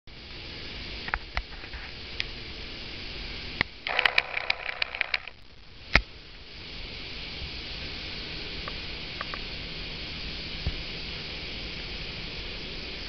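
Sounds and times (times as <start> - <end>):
steady hiss: 0.1 - 13.0
rapid rattling clicks: 3.8 - 5.4
camera handling clicks: 3.9 - 5.3.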